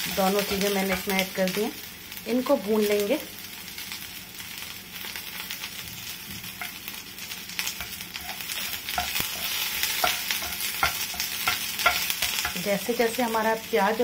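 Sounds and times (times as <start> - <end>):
onion sizzling in hot oil: 0.0 - 14.0
spatula scraping pan: 7.7 - 12.7.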